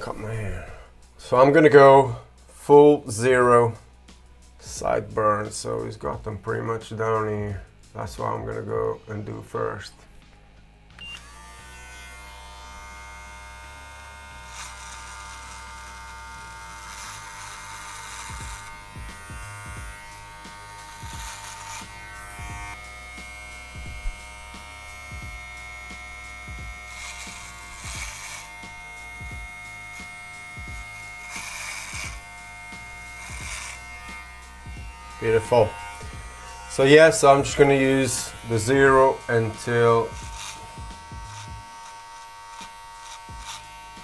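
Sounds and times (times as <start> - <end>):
electric beard trimmer whine: 11.0 - 44.0
trimmer cutting hair: 11.0 - 44.0.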